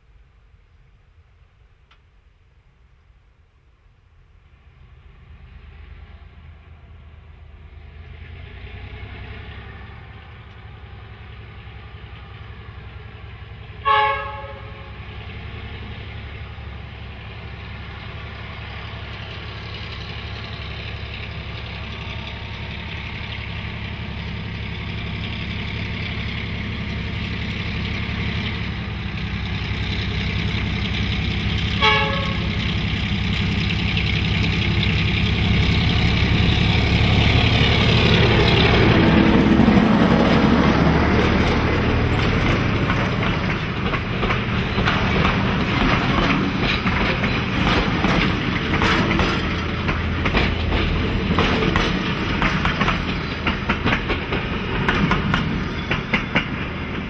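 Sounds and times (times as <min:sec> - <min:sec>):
diesel locomotive rumble: 0:04.0 - 0:57.0
short horn blasts: 0:13.8 - 0:15.0, 0:31.8 - 0:32.6.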